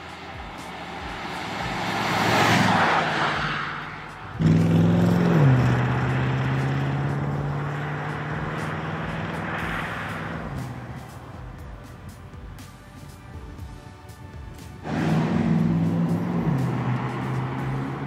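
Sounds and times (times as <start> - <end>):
car passing by: 0.0 - 11.5, 14.6 - 18.0
loud steady engine note: 0.0 - 18.0.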